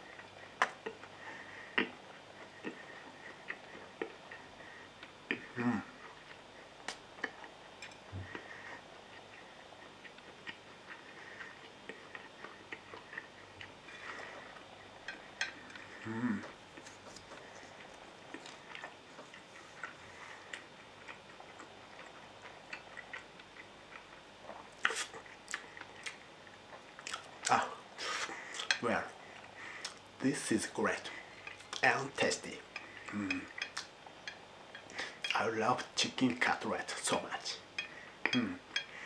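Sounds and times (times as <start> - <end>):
person chewing crispy food: 8.2 - 35.4.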